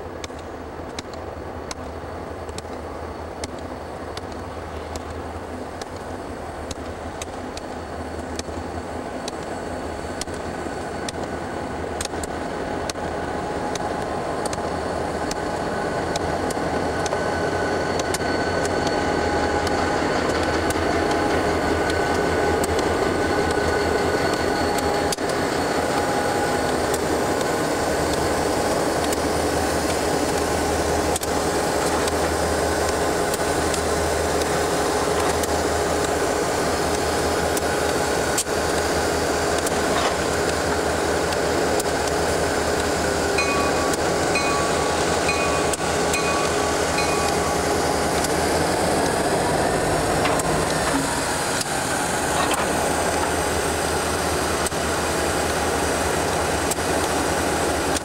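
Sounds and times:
locomotive engine rumble: 0:00.0 - 0:58.0
faint whine: 0:39.0 - 0:54.7.

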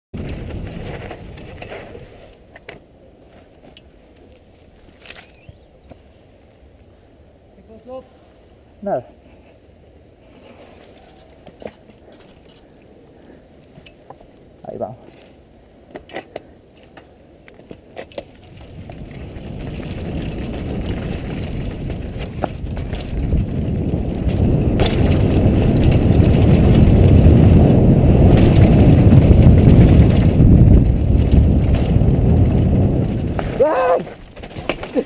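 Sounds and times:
wind rush on microphone: 0:00.2 - 0:02.3, 0:18.3 - 0:35.0
tyre rumble on dirt trail: 0:00.2 - 0:06.1, 0:16.8 - 0:35.0
bike knocks: 0:18.0 - 0:35.0.

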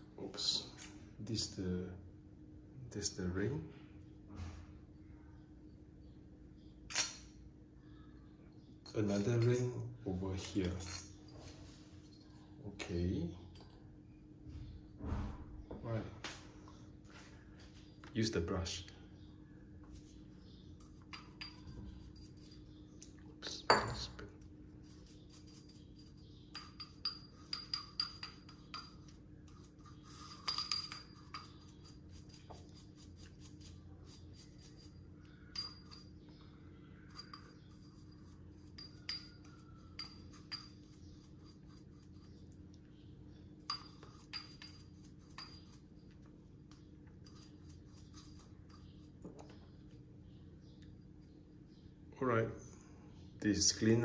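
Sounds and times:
small metal parts clinking: 0:10.4 - 0:12.4.

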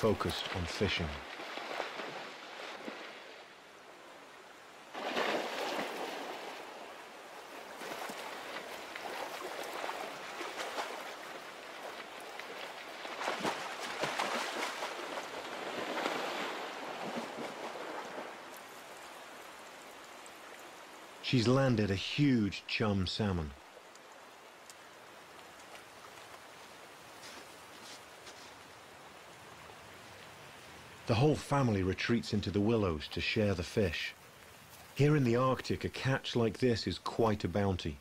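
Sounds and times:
river water running: 0:00.0 - 0:38.0
bear splashing in water: 0:01.2 - 0:03.5, 0:04.9 - 0:20.2.

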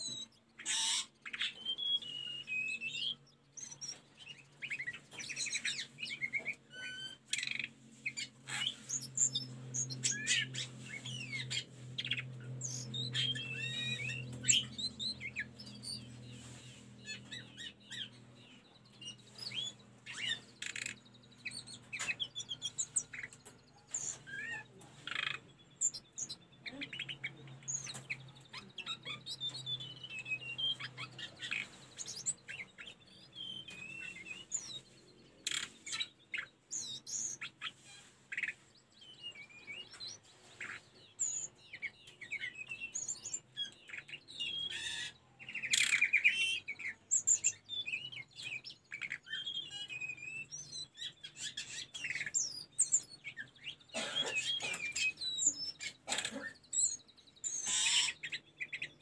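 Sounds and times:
bird trill: 0:00.0 - 0:59.0
bird singing high whistles: 0:00.7 - 0:03.0.

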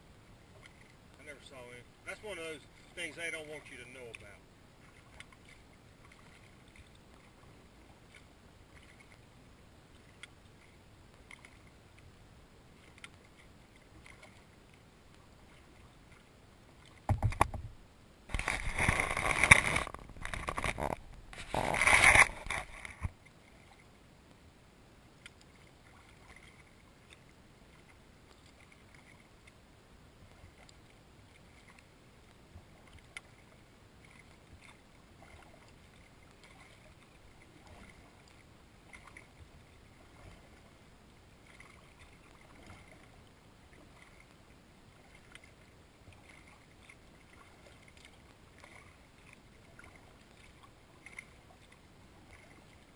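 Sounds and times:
paddle drips and ticks: 0:00.3 - 0:52.9
low thump: 0:17.1 - 0:18.4
kayak scraping past tree trunk: 0:18.3 - 0:23.2.

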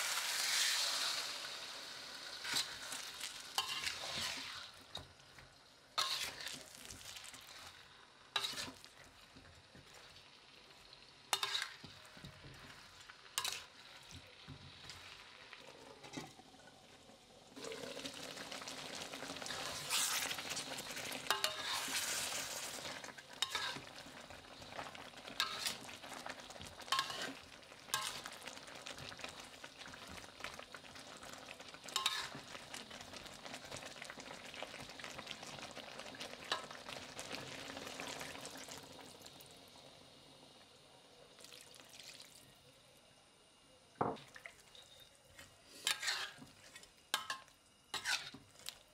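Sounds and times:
food sizzling in a wok: 0:00.0 - 0:48.9
utensil scraping and knocking pan: 0:45.8 - 0:47.4, 0:48.0 - 0:48.5.

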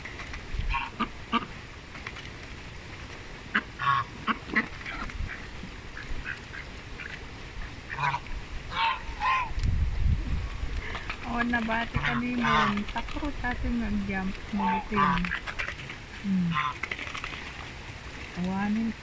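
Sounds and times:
geese honking: 0:00.7 - 0:01.6, 0:03.5 - 0:09.6, 0:11.2 - 0:13.2, 0:14.4 - 0:17.3.

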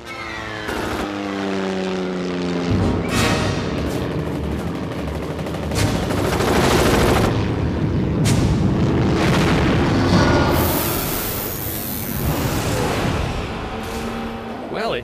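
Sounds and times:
rattling machine-gun fire: 0:03.8 - 0:07.4.

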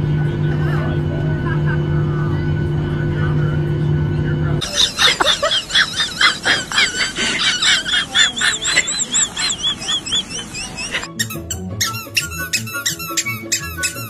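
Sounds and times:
high-pitched squeaky chirps: 0:08.2 - 0:14.0.

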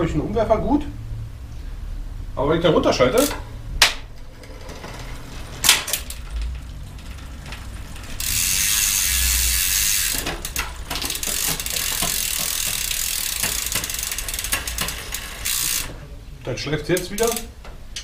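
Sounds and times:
man talking: 0:00.0 - 0:01.0, 0:15.9 - 0:17.6
bicycle chain whirring: 0:02.9 - 0:17.6
derailleur clicking and rubbing: 0:03.1 - 0:18.0.

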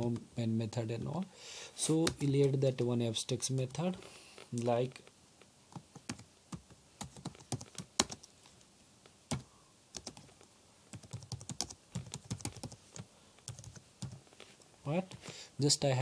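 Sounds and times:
typing on computer keyboard: 0:06.0 - 0:08.3, 0:10.0 - 0:12.8, 0:13.4 - 0:14.2.

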